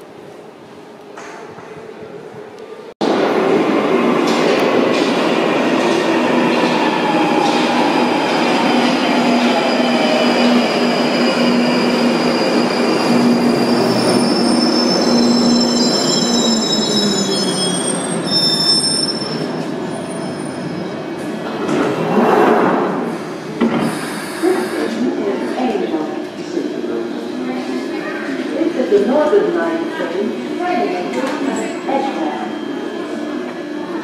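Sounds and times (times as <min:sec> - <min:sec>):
train wheels rumbling on rail: 0:01.1 - 0:18.1
wheel and brake squeals: 0:09.4 - 0:21.0.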